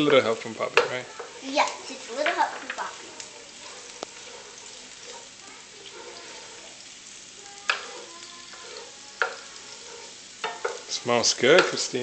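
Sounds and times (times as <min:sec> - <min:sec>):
onions sizzling in a pan: 0:00.0 - 0:12.0
spoon stirring: 0:00.0 - 0:12.0
spoon knocking against pan: 0:07.6 - 0:08.1, 0:08.7 - 0:11.8.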